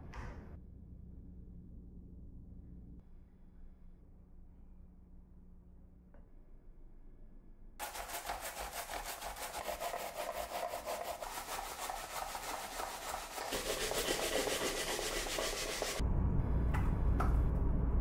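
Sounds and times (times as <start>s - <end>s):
grating on plastic grater: 7.8s - 16.0s.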